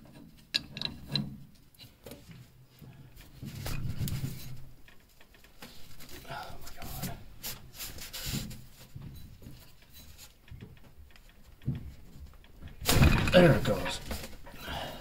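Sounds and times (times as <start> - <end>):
wrench clicking and scraping metal: 0.1 - 1.8.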